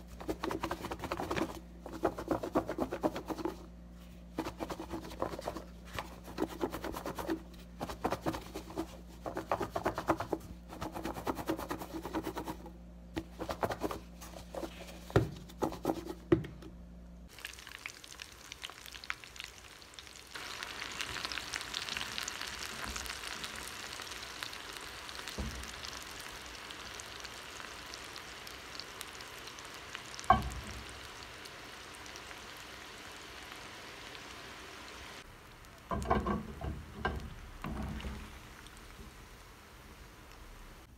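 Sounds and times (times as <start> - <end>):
pasta sizzling in hot oil: 17.3 - 40.9.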